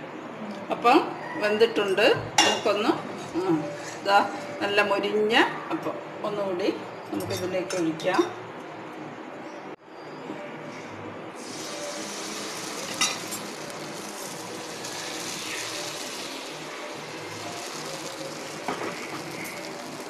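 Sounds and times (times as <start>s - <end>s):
batter sizzling in a hot pan: 11.4s - 20.0s.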